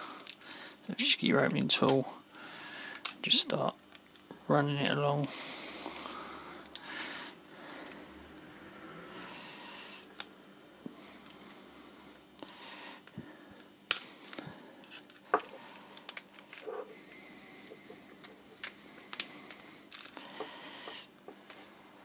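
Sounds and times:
plastic clips clicking and snapping: 0:13.9 - 0:16.7, 0:18.2 - 0:21.6.

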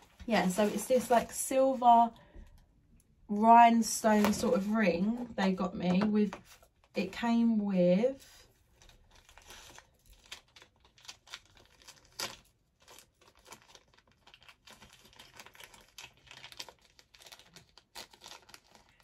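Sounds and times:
paper wrapping crinkling: 0:00.0 - 0:01.4, 0:08.4 - 0:19.0.

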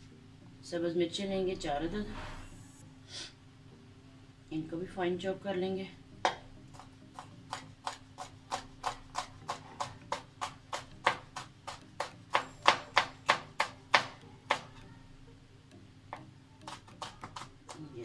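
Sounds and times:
knife chopping on plastic board: 0:06.2 - 0:14.8, 0:16.1 - 0:18.0.

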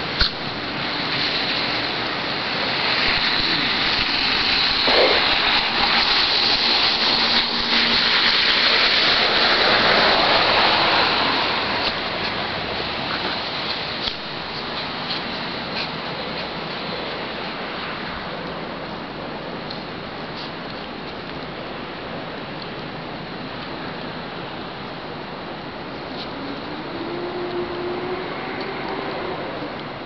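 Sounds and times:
steady rushing noise: 0:00.0 - 0:30.0.

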